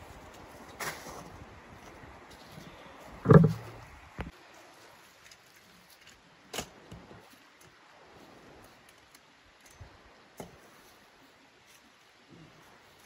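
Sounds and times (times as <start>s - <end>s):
faint outdoor hiss: 0.0s - 13.0s
sharp knocks: 3.3s - 3.8s.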